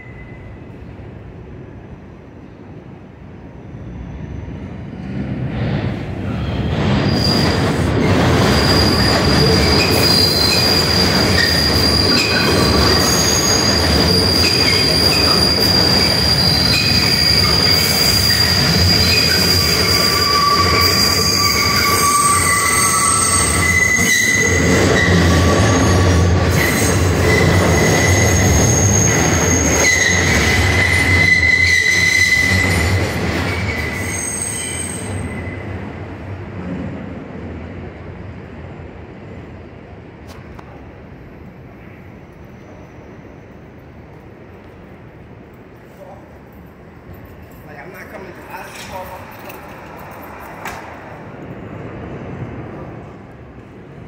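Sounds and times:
subway train rumbling: 0:00.0 - 0:54.0
steel wheel squeals: 0:07.0 - 0:35.7.

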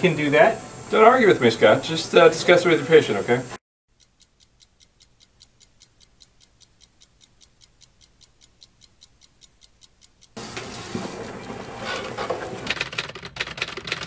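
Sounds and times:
clock ticking quickly: 0:03.9 - 0:12.6.

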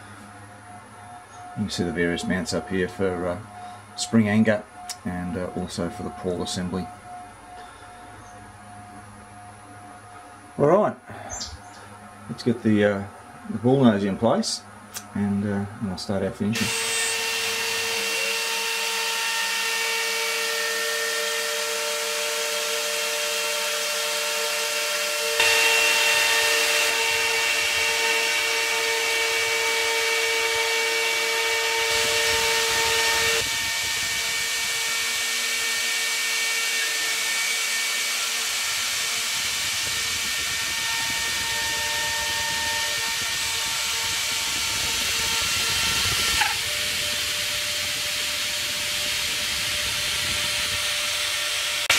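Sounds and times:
router spindle high whine: 0:00.0 - 0:11.0, 0:16.5 - 0:51.9
router bit cutting wood: 0:16.6 - 0:51.9.

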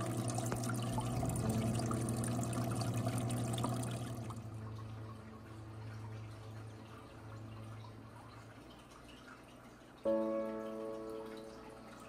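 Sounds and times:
steady low hum: 0:00.0 - 0:09.0
water trickling and dripping: 0:00.0 - 0:12.0.

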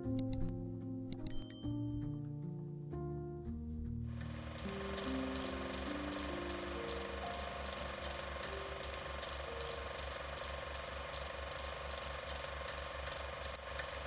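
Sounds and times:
film projector clatter: 0:04.2 - 0:14.0.

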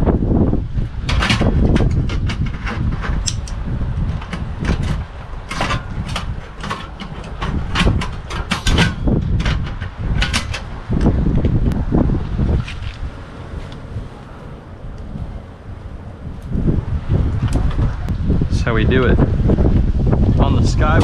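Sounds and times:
wind rumble on microphone: 0:00.0 - 0:21.0
metal clicks and clatter: 0:01.0 - 0:11.8.

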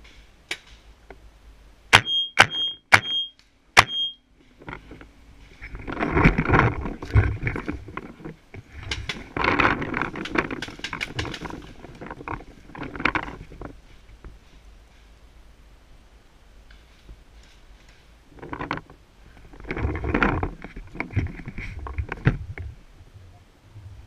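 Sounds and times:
rustling through undergrowth: 0:04.3 - 0:23.0
gear rattling: 0:04.6 - 0:13.8, 0:18.3 - 0:22.4.

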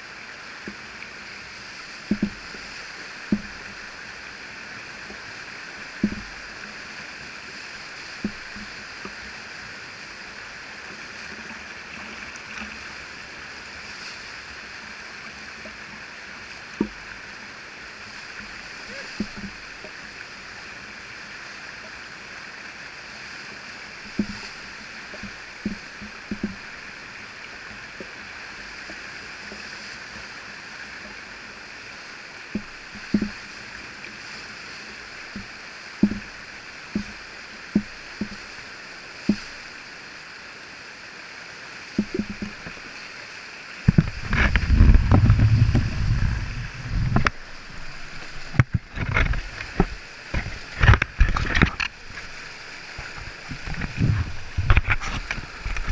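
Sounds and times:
water splashing against microphone: 0:00.0 - 0:22.1, 0:23.1 - 0:40.4, 0:41.8 - 0:55.9
whitewater rushing: 0:00.0 - 0:55.9
soft knocks: 0:02.1 - 0:02.4.

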